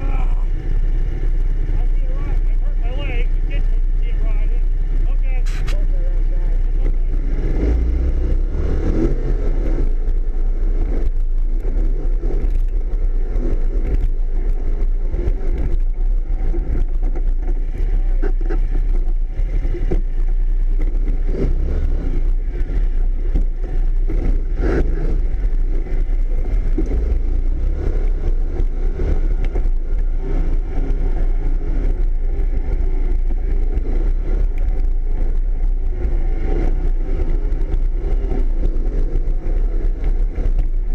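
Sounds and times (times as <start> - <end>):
off-road vehicle engine running: 0.0 - 40.9
knocks and rattles over bumps: 8.9 - 40.9.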